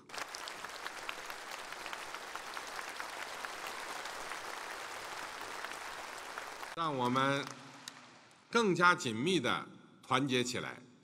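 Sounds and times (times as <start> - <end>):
large audience applauding: 0.0 - 8.5.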